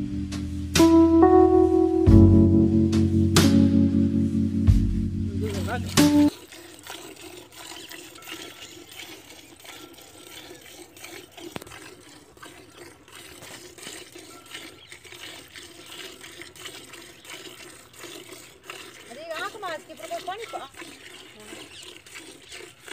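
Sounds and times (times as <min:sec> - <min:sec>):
milk squirting into steel bucket: 0:05.4 - 0:22.9.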